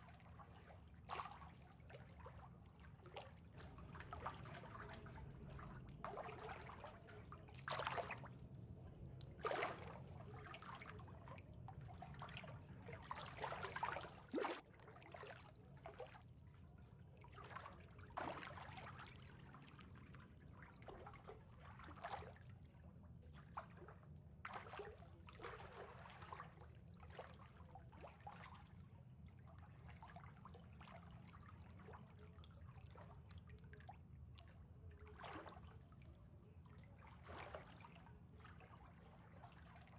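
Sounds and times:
pool water lapping: 0:00.0 - 0:39.9
water sloshes: 0:00.1 - 0:16.2, 0:17.2 - 0:19.6.

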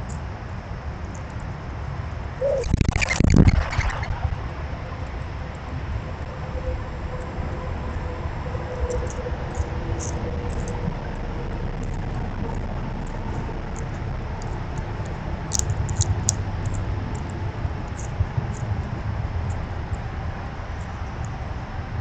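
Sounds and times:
low outdoor rumble: 0:00.0 - 0:22.0
squirrel clicks near microphone: 0:15.5 - 0:17.3.

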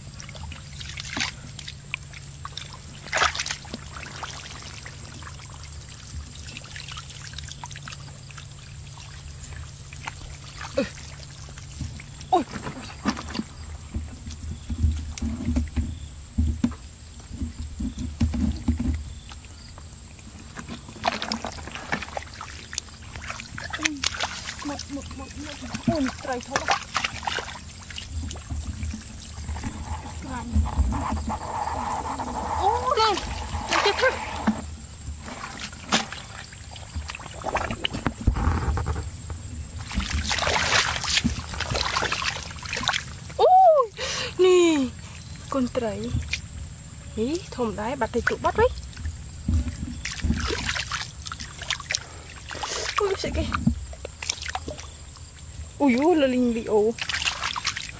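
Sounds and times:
muddy water sloshing by hand: 0:00.0 - 0:57.9
knocks and rustling: 0:11.7 - 0:19.4, 0:28.0 - 0:32.6, 0:33.2 - 0:42.6, 0:49.4 - 0:51.0.

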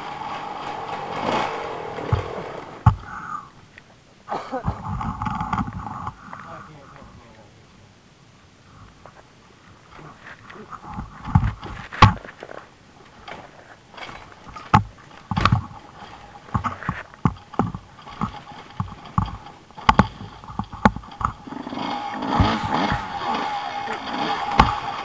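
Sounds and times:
gravel and rock crunching: 0:00.0 - 0:04.0, 0:08.9 - 0:25.0
steady loud noise: 0:00.0 - 0:08.8, 0:14.1 - 0:25.0.

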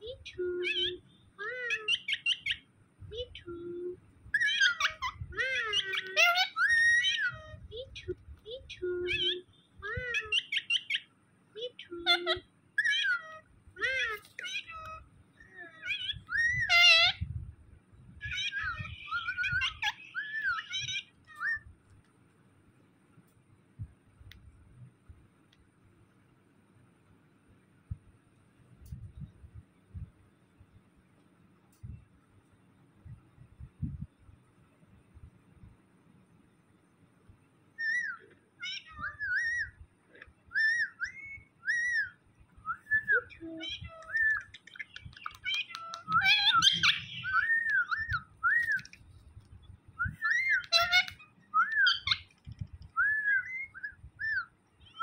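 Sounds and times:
squeaky bird chattering: 0:00.0 - 0:02.6, 0:04.4 - 0:11.1, 0:15.6 - 0:17.3, 0:18.2 - 0:21.6, 0:37.8 - 0:39.8, 0:40.5 - 0:42.2, 0:43.0 - 0:49.0, 0:50.1 - 0:55.0
parakeet calling: 0:00.0 - 0:03.5, 0:04.2 - 0:17.3, 0:18.2 - 0:21.7, 0:37.8 - 0:49.0, 0:50.0 - 0:55.0.

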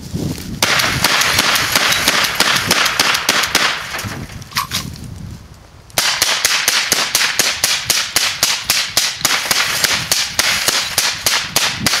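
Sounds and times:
rifle shots in rapid succession: 0:00.6 - 0:04.0, 0:06.0 - 0:12.0.

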